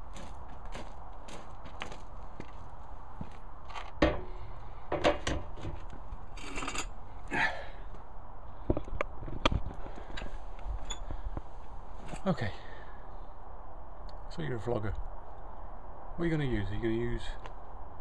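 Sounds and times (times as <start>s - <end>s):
rustling and scraping: 0.0s - 7.0s, 8.7s - 12.4s.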